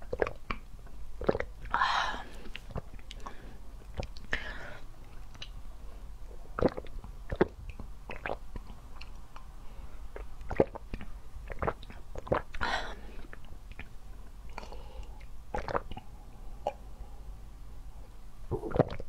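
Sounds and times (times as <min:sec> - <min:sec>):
gulping and swallowing: 0:01.2 - 0:01.8, 0:06.6 - 0:09.2, 0:10.2 - 0:12.6, 0:15.5 - 0:16.8, 0:18.5 - 0:19.0.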